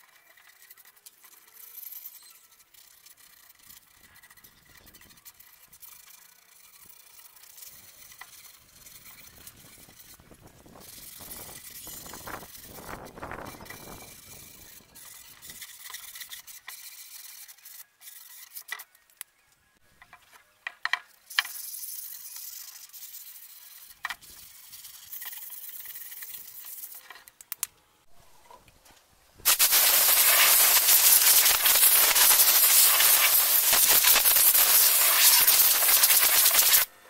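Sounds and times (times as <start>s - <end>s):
sandpaper rubbing on wood: 0.1s - 18.7s, 21.4s - 27.0s, 29.5s - 36.9s
compressed air blow gun hissing: 29.4s - 36.9s.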